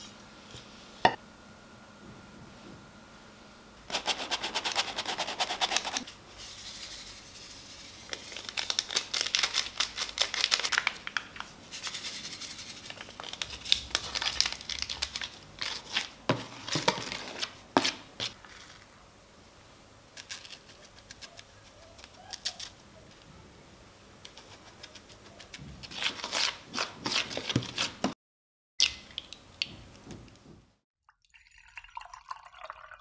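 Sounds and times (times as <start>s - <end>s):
sachets crinkling and tearing: 8.1s - 11.5s, 12.9s - 16.2s.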